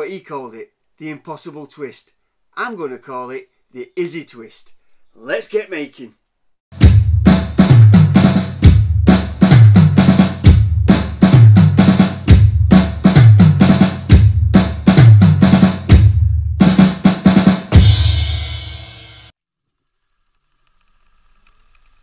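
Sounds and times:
fast loud drum beat: 6.8s - 19.3s.

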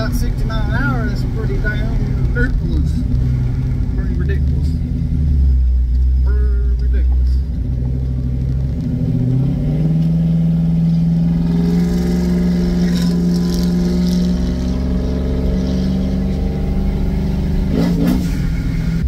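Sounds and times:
engine drone inside a cab: 0.0s - 19.0s.

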